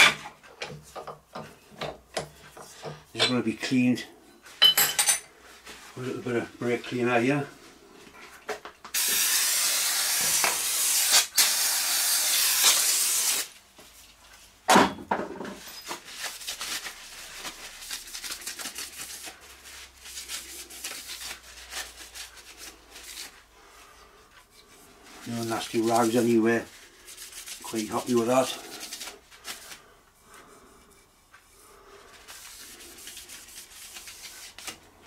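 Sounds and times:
aerosol spray hissing: 8.9s - 13.5s
rag wiping along rail: 24.5s - 28.8s.

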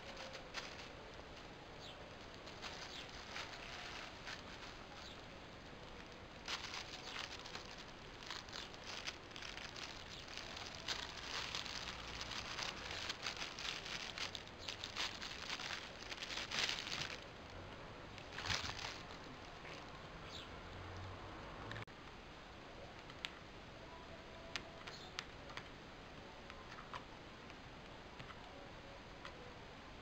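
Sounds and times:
plastic bag crinkling: 0.0s - 17.6s, 18.2s - 20.0s.

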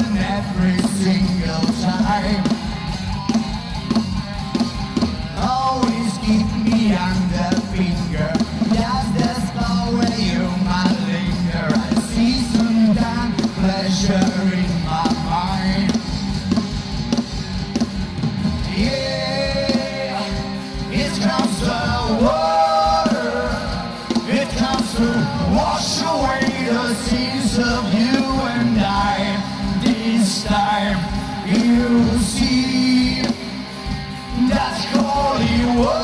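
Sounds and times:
man singing: 0.0s - 2.7s, 5.4s - 16.0s, 18.7s - 33.6s, 34.3s - 36.0s
bass guitar: 0.0s - 36.0s
drum kit: 0.0s - 36.0s
electric guitar: 0.0s - 36.0s.

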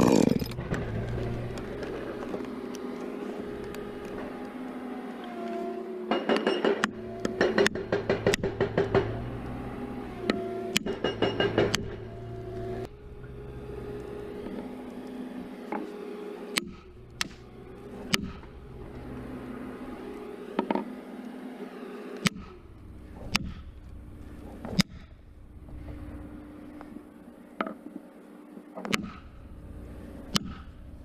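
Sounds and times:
engine idling: 0.0s - 5.3s, 6.0s - 27.4s, 28.9s - 31.0s
sharp knocks: 6.1s - 9.4s.

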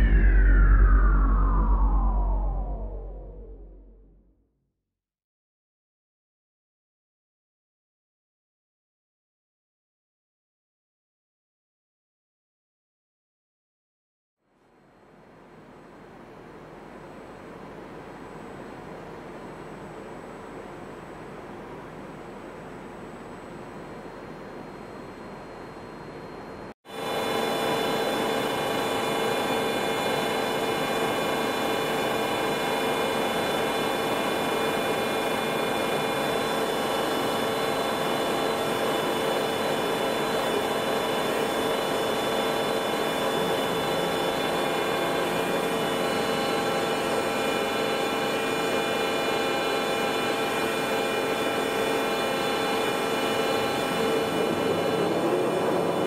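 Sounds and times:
held whining tones: 0.0s - 4.2s
machine hum: 0.0s - 4.3s, 16.6s - 56.0s.

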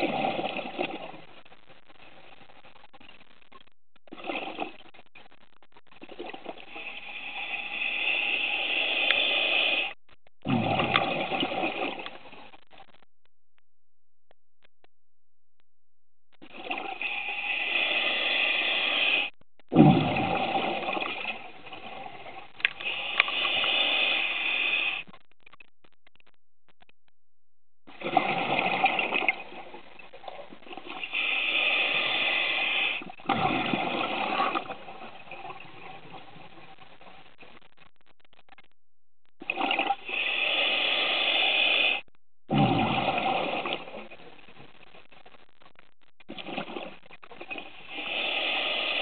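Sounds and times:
scuba regulator hissing inhale: 6.8s - 9.9s, 17.0s - 19.3s, 22.8s - 25.0s, 31.1s - 33.1s, 40.0s - 42.0s, 47.9s - 49.0s
faint ticks: 9.0s - 9.3s, 22.6s - 23.7s
exhaled bubbles rushing underwater: 10.5s - 12.4s, 16.5s - 17.4s, 19.8s - 22.5s, 28.0s - 31.1s, 33.2s - 36.6s, 42.5s - 44.1s
bubbling exhale: 16.5s - 25.1s, 39.5s - 44.1s, 47.5s - 49.0s.

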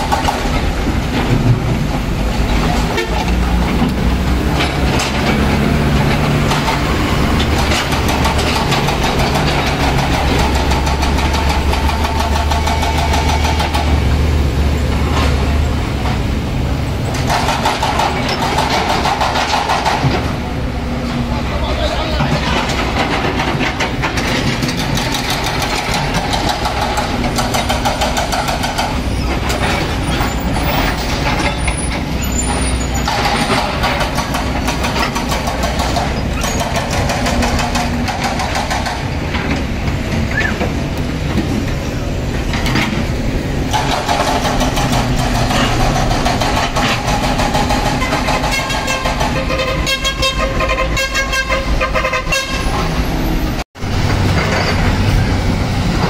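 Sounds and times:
diesel trucks and machinery running: 0.0s - 56.0s
vehicle horn tooting: 2.9s - 3.2s, 48.5s - 52.8s.

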